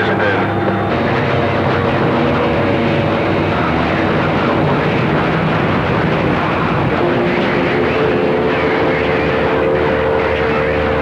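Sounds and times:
radio static and hiss: 0.0 - 1.3
faint steady tones: 0.0 - 11.0.

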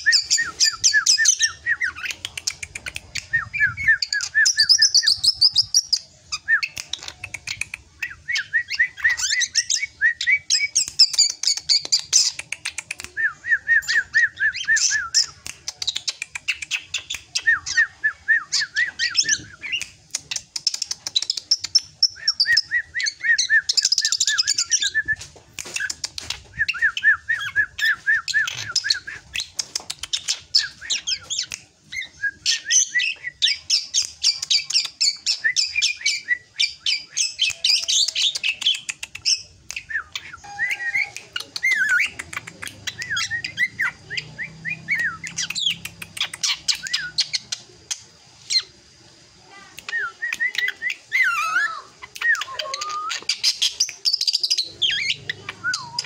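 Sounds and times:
bird chattering and clicking: 0.0 - 3.4, 6.6 - 8.2, 10.5 - 13.2, 14.9 - 17.5, 19.1 - 22.6, 25.6 - 27.0, 28.3 - 31.8, 33.1 - 36.2, 36.9 - 48.7, 52.0 - 56.0
bird singing repeated notes: 0.0 - 25.2, 25.8 - 48.9, 49.8 - 56.0.

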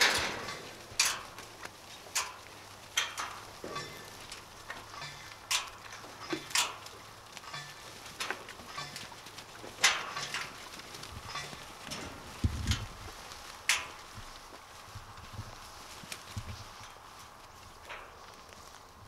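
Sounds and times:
metal pen clanking and rattling: 0.0 - 1.4, 3.0 - 12.9.

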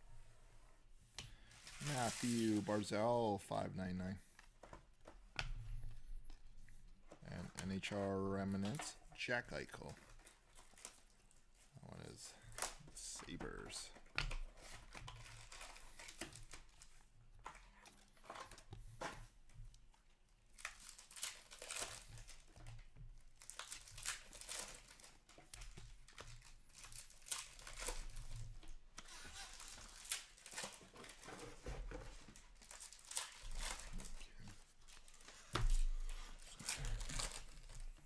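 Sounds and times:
card pack wrappers crinkling: 1.4 - 4.2, 7.3 - 14.0, 20.5 - 22.6, 23.4 - 38.0.

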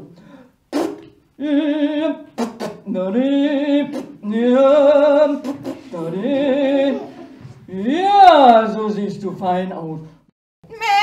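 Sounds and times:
person singing wordless tune: 1.3 - 8.6.

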